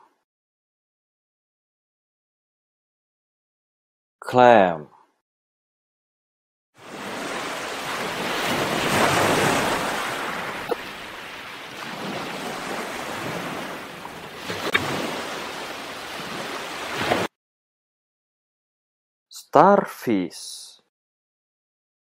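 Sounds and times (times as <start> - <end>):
surf washing over sand: 6.8 - 17.3.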